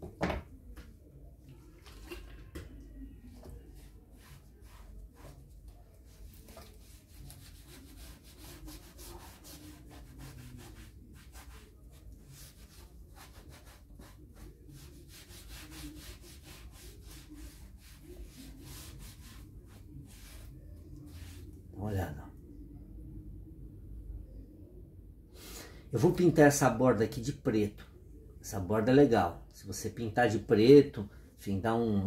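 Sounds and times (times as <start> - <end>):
sponge rubbing on leather: 3.4 - 21.6.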